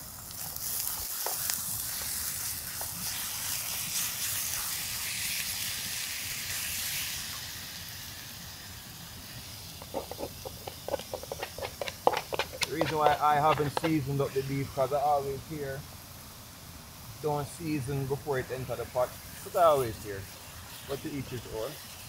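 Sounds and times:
meat sizzling in a skillet: 0.0 - 22.0
light knocks and scrapes: 9.8 - 14.1.

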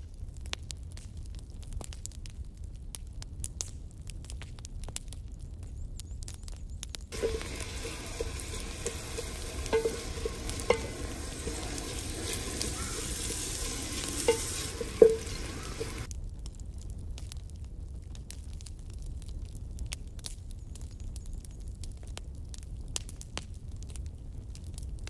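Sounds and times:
onions sizzling in hot oil: 7.1 - 16.1
metal spoon scraping a pot: 7.2 - 16.1.

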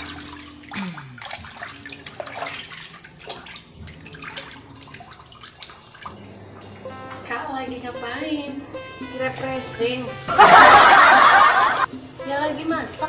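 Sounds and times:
water splashing and sloshing: 0.0 - 8.4.

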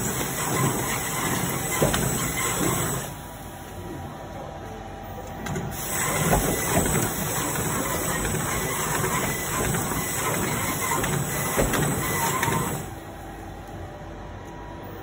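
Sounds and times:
bag-making machine clattering: 0.0 - 3.1, 5.4 - 12.9
faint machine whine: 0.0 - 15.0.

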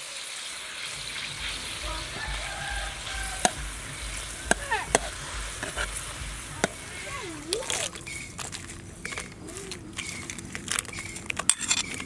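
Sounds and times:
sauce sizzling in a wok: 0.0 - 9.4.

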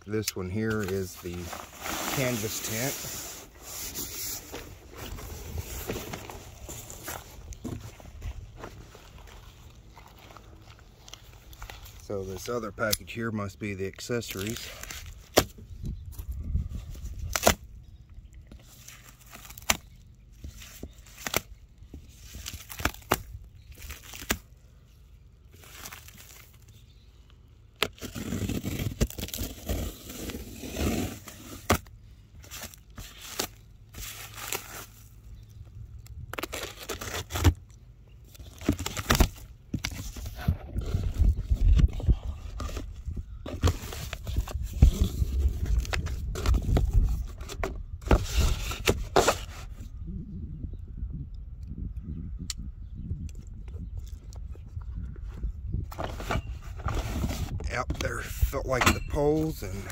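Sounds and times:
packing tape scraping and crackling: 0.1 - 13.3, 14.0 - 17.7, 18.5 - 49.9
cardboard flaps pulled open: 27.8 - 31.9.

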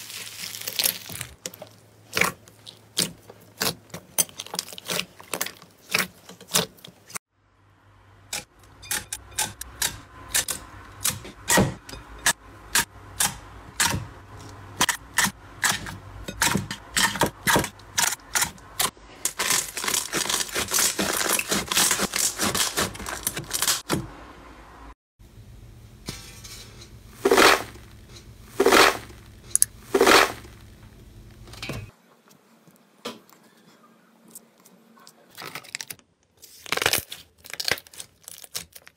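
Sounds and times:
hands squeezing slime: 0.0 - 3.8.

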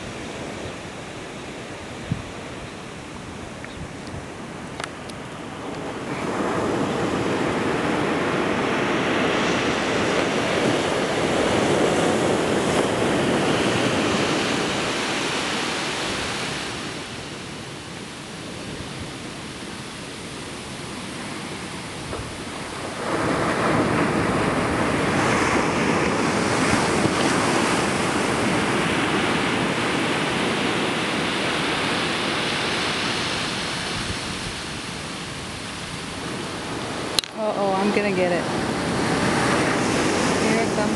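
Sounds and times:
ocean surf breaking on sand: 0.0 - 40.9.

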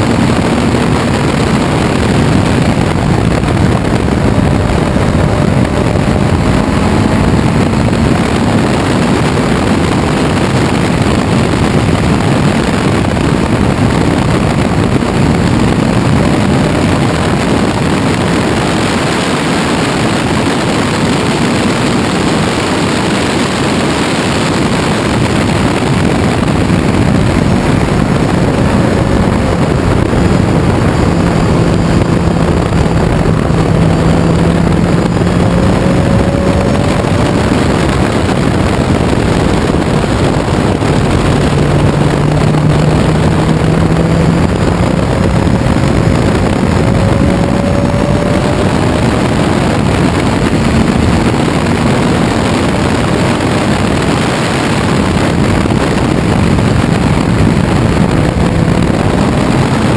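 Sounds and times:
race car engine accelerating: 0.0 - 59.9
rush of wind noise: 0.0 - 59.9.

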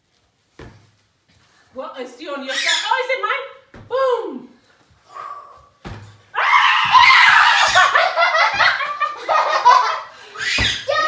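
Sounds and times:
woman laughing loudly: 7.3 - 10.2.

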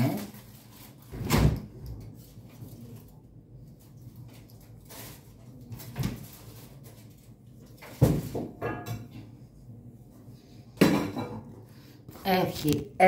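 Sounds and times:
household knocks and thumps: 7.9 - 9.1.

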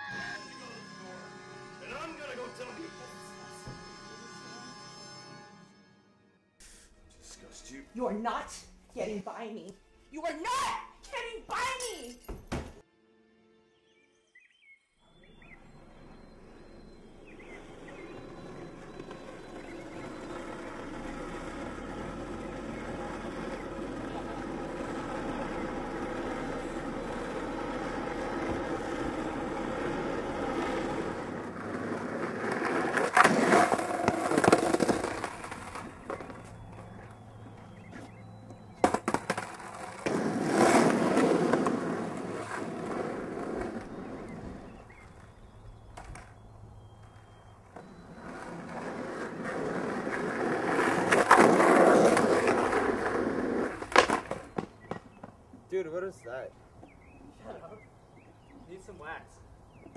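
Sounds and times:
skateboard wheels rolling on asphalt: 15.2 - 55.7
skateboard clacking on pavement: 17.7 - 37.6, 38.8 - 44.1, 45.9 - 46.4, 47.0 - 55.4.

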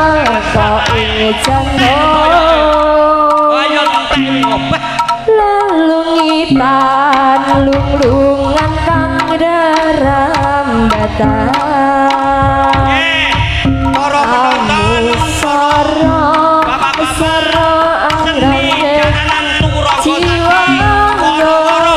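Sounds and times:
high sliding melody line: 0.0 - 7.1
hand drum strokes: 0.0 - 21.9
deep low notes: 0.6 - 3.6.

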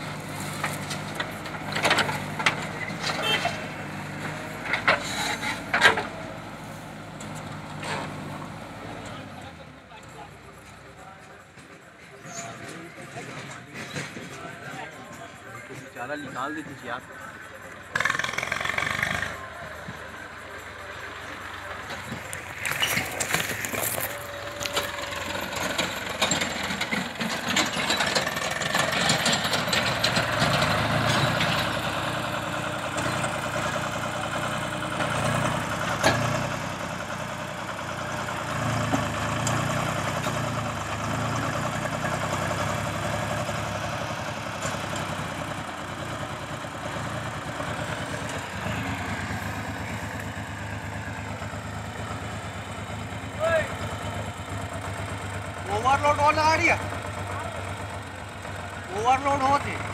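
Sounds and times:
backhoe diesel engine working: 0.0 - 59.9.

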